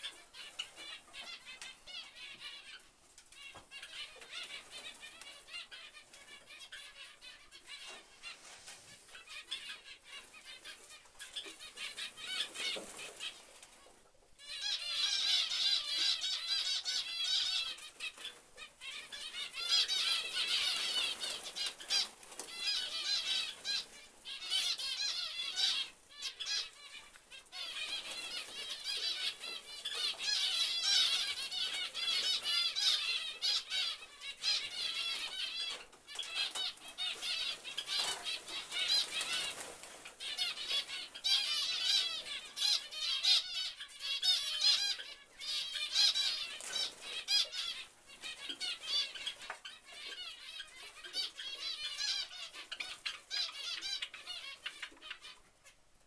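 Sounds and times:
finches chirping: 0:14.4 - 0:55.8
wings flapping: 0:17.5 - 0:24.8, 0:34.5 - 0:42.1.

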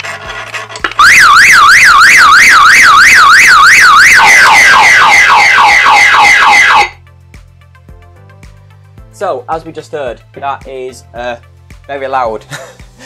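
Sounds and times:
alarm siren wailing: 0:01.0 - 0:07.0.

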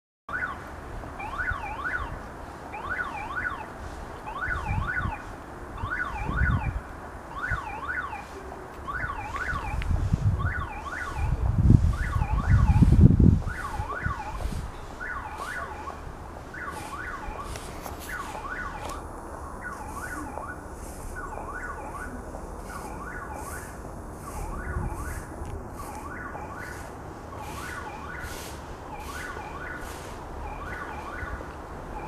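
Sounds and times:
warbling level crossing signal: 0:08.9 - 0:26.7.

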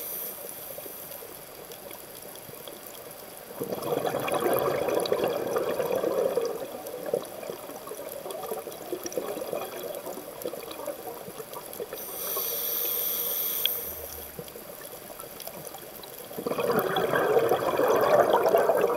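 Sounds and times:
underwater bubbles gurgling: 0:00.0 - 0:18.9
regulator hissing inhalation: 0:12.0 - 0:14.4.

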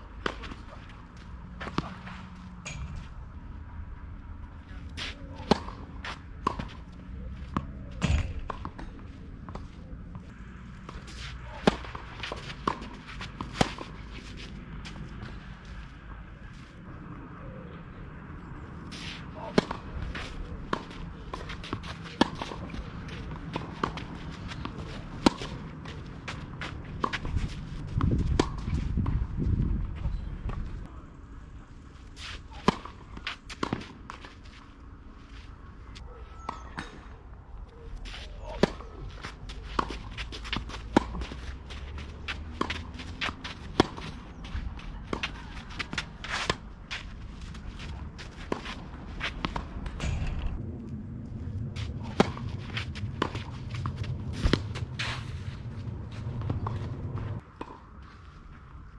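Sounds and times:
tennis ball bouncing: 0:05.4 - 0:06.8, 0:10.9 - 0:14.0, 0:20.6 - 0:28.7, 0:38.5 - 0:50.6
shoes scuffing on clay: 0:38.0 - 0:49.7, 0:51.8 - 0:58.6.

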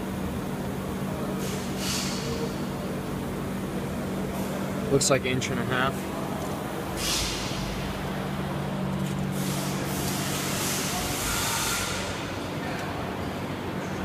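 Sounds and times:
low machine hum: 0:00.0 - 0:14.0
air hissing: 0:01.3 - 0:02.7, 0:06.9 - 0:08.0, 0:09.3 - 0:12.4.

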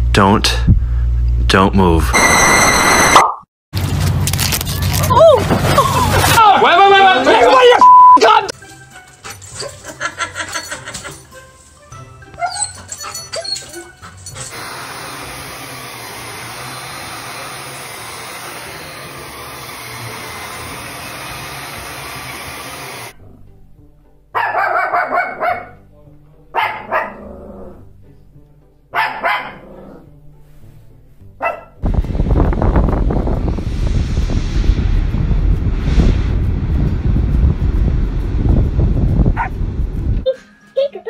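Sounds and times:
vacuum cleaner running: 0:14.5 - 0:23.2
small dog barking: 0:24.4 - 0:25.8, 0:26.5 - 0:27.2, 0:28.9 - 0:29.6, 0:31.4 - 0:31.8.

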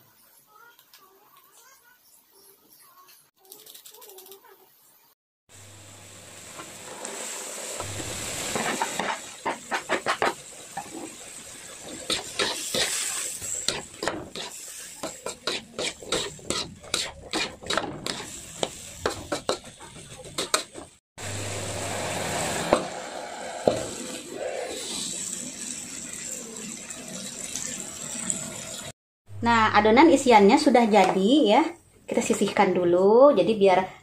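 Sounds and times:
vegetables sizzling in oil: 0:05.5 - 0:28.9
spatula scraping a wok: 0:06.6 - 0:25.1.

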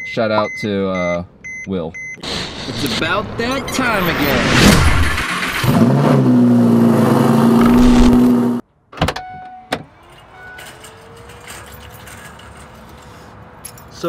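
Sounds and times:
loud droning tone: 0:06.4 - 0:08.6.

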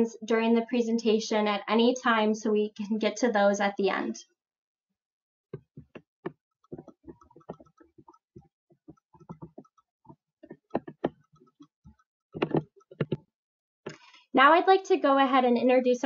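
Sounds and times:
soft clicks and taps: 0:05.6 - 0:08.2, 0:08.8 - 0:09.7, 0:10.4 - 0:11.7, 0:12.4 - 0:13.2.

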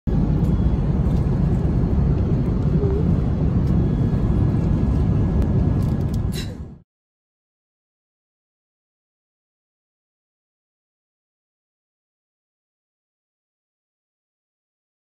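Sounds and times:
airliner cabin rumble: 0:00.1 - 0:06.8.

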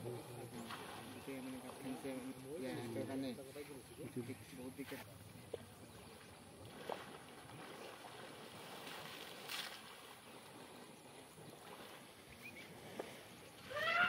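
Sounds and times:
faint water sloshing: 0:00.0 - 0:14.0
water splash: 0:06.6 - 0:10.2.

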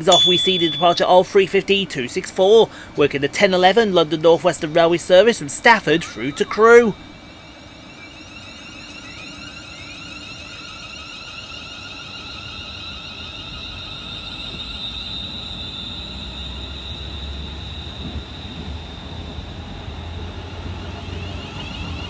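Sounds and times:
electric train motor whine: 0:07.0 - 0:22.0.

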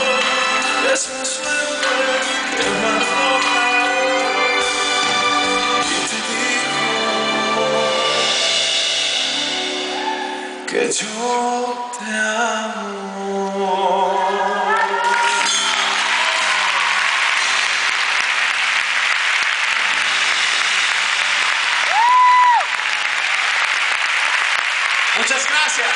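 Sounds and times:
person singing: 0:00.0 - 0:08.7, 0:09.6 - 0:16.1
audience applauding and cheering: 0:13.8 - 0:25.9.

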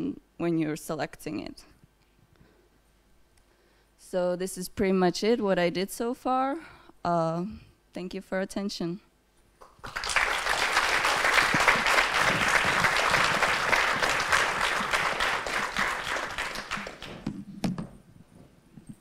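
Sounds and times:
audience applauding: 0:09.6 - 0:17.3.

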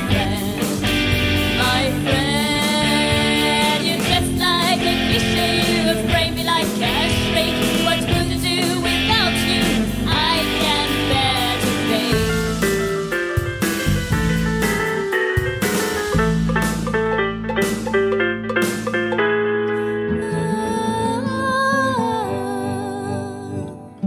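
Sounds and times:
person singing: 0:00.0 - 0:12.6, 0:20.0 - 0:24.0
guitar: 0:00.0 - 0:24.0
steady beat: 0:12.1 - 0:19.3.

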